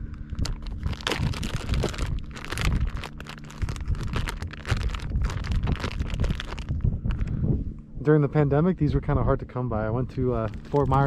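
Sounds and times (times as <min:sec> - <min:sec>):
plastic packet crinkling: 0:00.3 - 0:06.8, 0:10.2 - 0:11.0.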